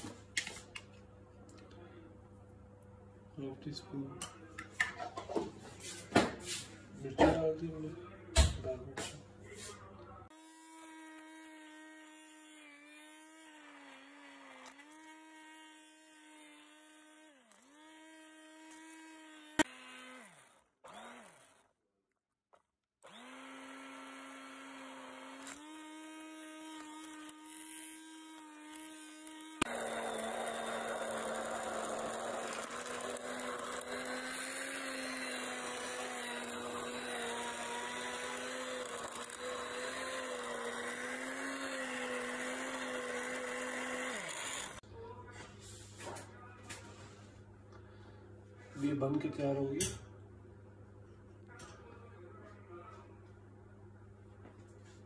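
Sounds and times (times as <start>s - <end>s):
hand blender motor humming: 10.3s - 21.6s, 23.0s - 44.8s
blender churning liquid: 10.3s - 21.7s, 23.0s - 44.8s.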